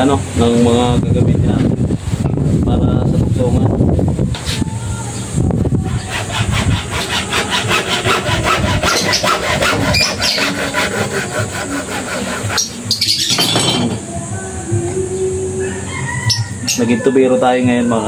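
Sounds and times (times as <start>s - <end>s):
hand saw cutting pipe: 5.9s - 13.7s.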